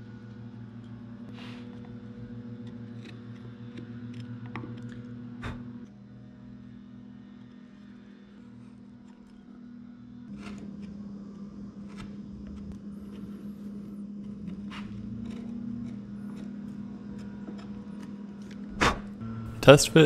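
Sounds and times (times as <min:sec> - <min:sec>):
low hum: 0:00.0 - 0:20.0
chisel scraping wood: 0:11.8 - 0:18.6.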